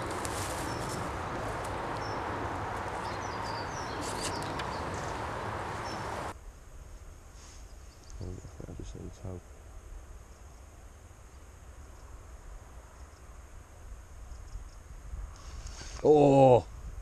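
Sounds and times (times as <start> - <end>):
small birds chirping: 0.0 - 6.3
outdoor rustling noise: 0.0 - 8.5, 9.5 - 17.0.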